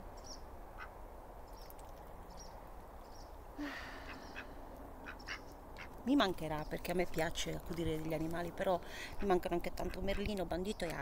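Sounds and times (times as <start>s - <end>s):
ducks quacking quietly: 3.6s - 6.0s.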